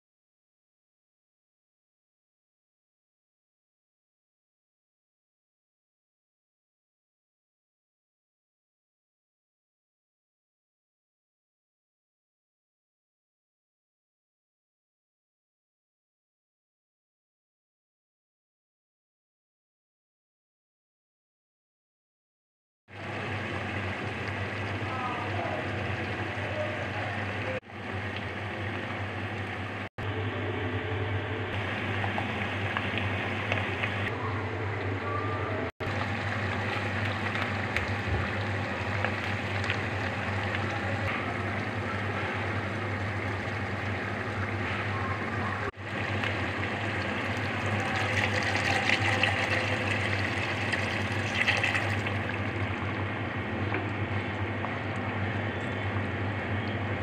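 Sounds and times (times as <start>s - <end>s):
chicken sizzling in oil: 22.9s - 29.9s, 35.8s - 53.8s
low hum: 23.0s - 57.0s.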